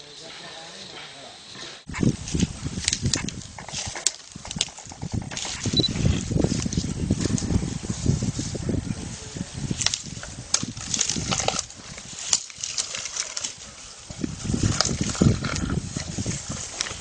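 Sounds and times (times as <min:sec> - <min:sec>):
dull low thumps: 0:01.9 - 0:03.7
grass stalks cracking: 0:01.9 - 0:07.5, 0:09.6 - 0:17.0.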